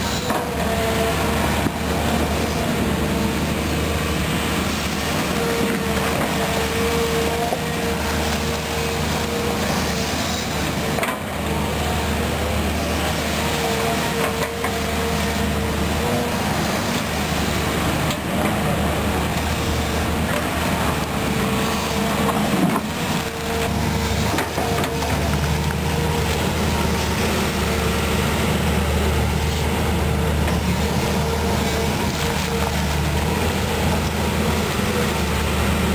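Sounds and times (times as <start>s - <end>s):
excavator diesel engine running: 0.0s - 35.9s
hydraulic whine: 0.0s - 35.9s.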